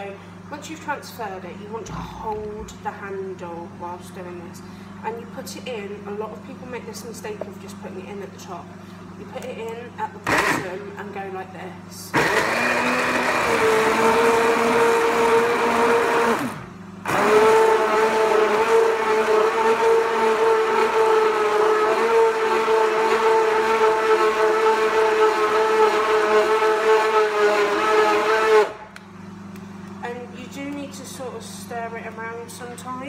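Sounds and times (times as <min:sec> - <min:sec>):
stick blender running: 0:09.7 - 0:11.0, 0:12.1 - 0:29.0.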